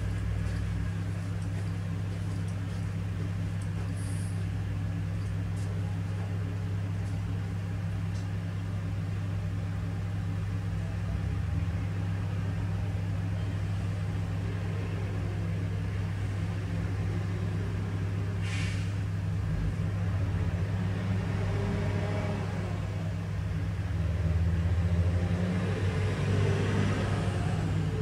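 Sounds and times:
diesel truck engine droning: 8.8s - 28.0s
brief hiss: 18.4s - 19.0s.

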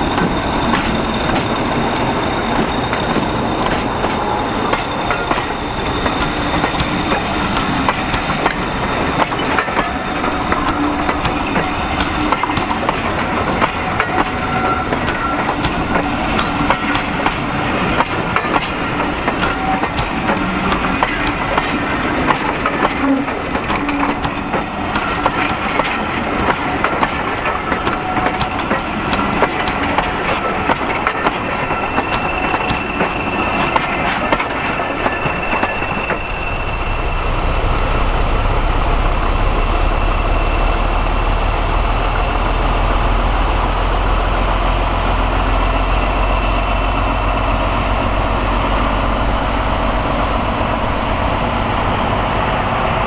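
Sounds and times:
high wheel squeal: 0.0s - 26.4s, 27.2s - 38.1s
diesel locomotive engine thrum: 0.0s - 53.0s
wheels clicking over rail joints: 4.7s - 36.2s.

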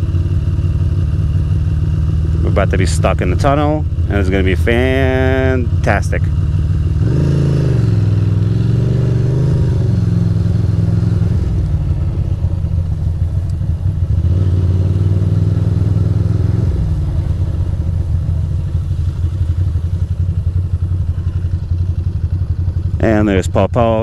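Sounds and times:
motorcycle engine revving: 0.0s - 24.0s.

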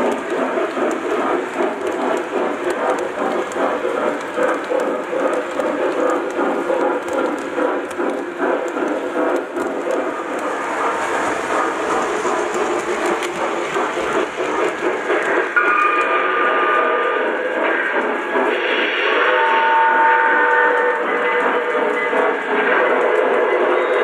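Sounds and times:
model train wheels clattering: 0.0s - 24.0s
model train steam whistle: 15.6s - 17.4s, 18.7s - 21.6s.

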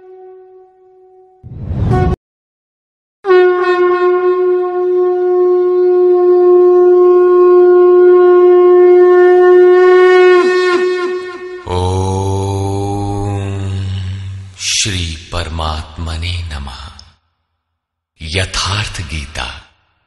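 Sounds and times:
conch shell blown: 0.0s - 2.2s, 3.2s - 12.2s.

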